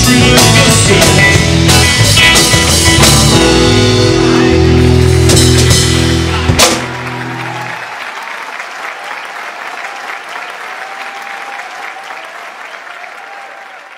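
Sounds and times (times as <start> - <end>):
live rock band chord: 0.0 - 7.6
audience applauding: 4.5 - 13.9.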